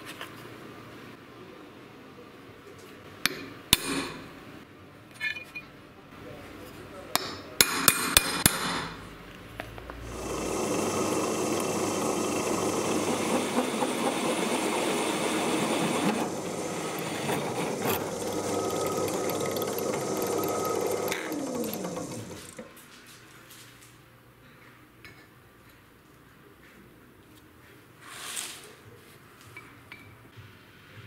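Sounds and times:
drill boring through steel: 10.1 - 22.6.

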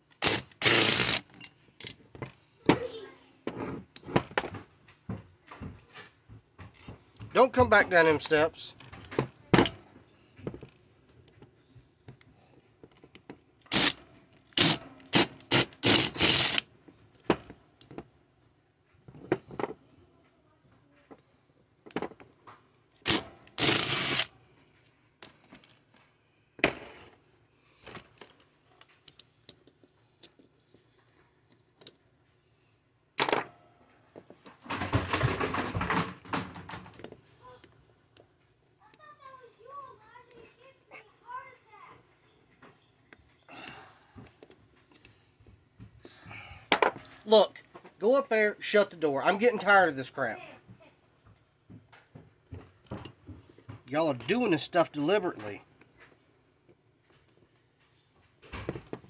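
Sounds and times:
metal tools clattering on workbench: 1.2 - 2.3.

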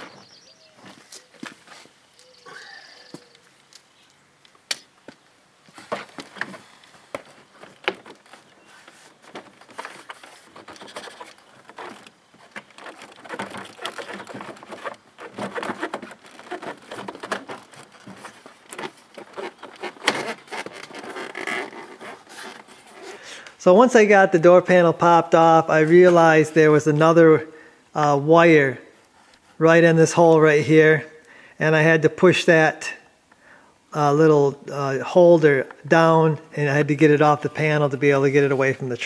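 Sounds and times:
plastic panel scraping and rustling: 5.7 - 23.4.

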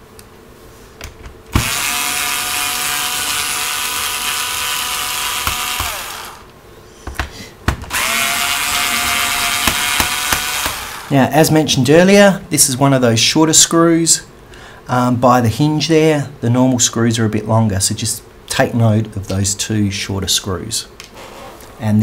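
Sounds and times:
electric screwdriver motor whining: 1.5 - 6.5, 7.9 - 11.1.

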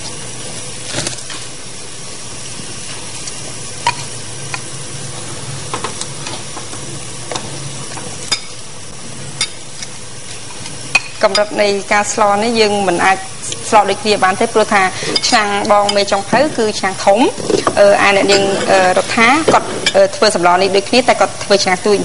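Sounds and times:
food sizzling in a pan: 0.0 - 22.0
utensil clinking and scraping: 17.4 - 20.1.

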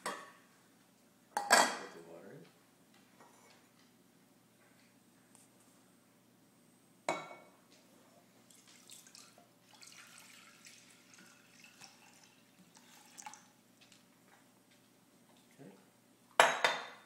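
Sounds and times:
cookware clanking: 1.4 - 1.9, 16.4 - 17.0
water running at a sink: 8.4 - 14.1.

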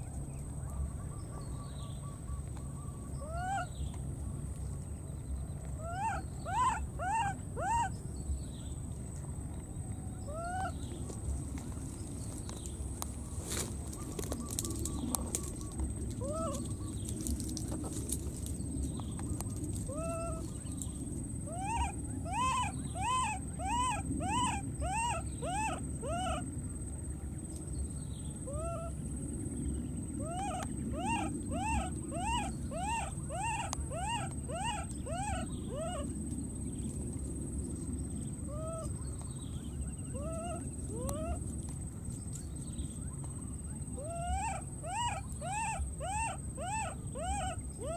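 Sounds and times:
low background noise: 0.0 - 47.9
baby monkey crying: 5.8 - 7.9, 16.2 - 16.6, 19.9 - 20.4, 21.5 - 26.5, 28.5 - 29.0, 30.2 - 36.1, 38.5 - 38.9, 40.1 - 41.4, 44.0 - 47.9.

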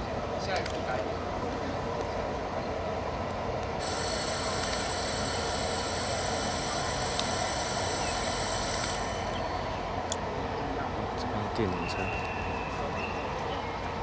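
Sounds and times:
high-pitched whining tones: 3.8 - 10.2.

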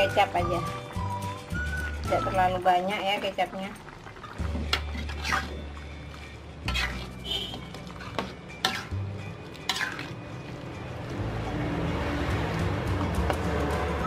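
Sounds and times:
metal spatula scraping metal pan: 4.5 - 5.8, 6.6 - 10.3.

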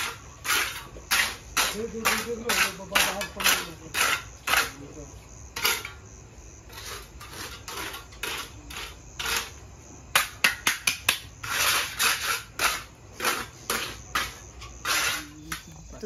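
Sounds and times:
trowel scraping wet cement: 0.0 - 16.0
sharp trowel taps: 10.2 - 11.3.

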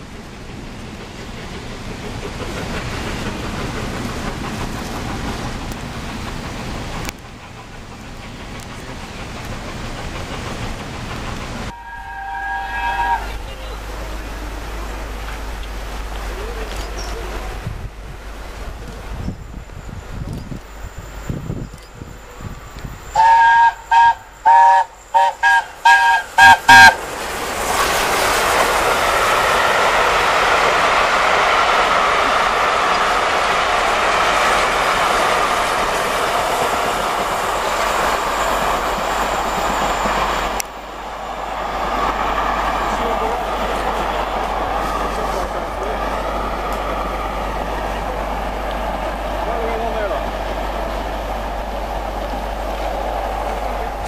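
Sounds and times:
train coaches rolling on rails: 0.0 - 54.0
steam whistle short blasts: 11.7 - 13.4, 23.1 - 27.0
steady rain falling: 13.4 - 19.0.

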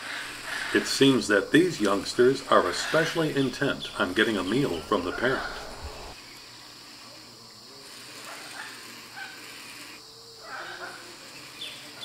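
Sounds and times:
young birds begging calls: 0.0 - 6.2
insects hissing: 0.0 - 12.0.

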